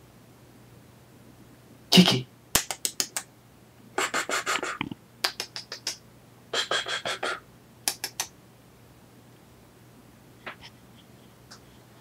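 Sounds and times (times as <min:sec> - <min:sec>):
cat clicking mouth sounds: 0:04.8 - 0:06.0, 0:07.8 - 0:08.3.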